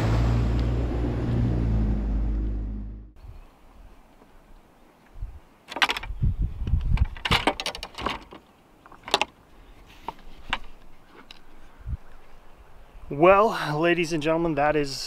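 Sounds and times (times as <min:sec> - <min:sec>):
fishing rods and reels rattling: 0:06.8 - 0:09.4.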